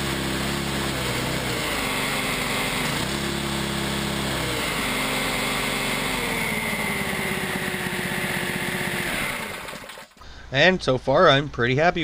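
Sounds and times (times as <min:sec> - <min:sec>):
supercharger high whine: 0:00.0 - 0:10.1
small engine running: 0:00.0 - 0:10.2.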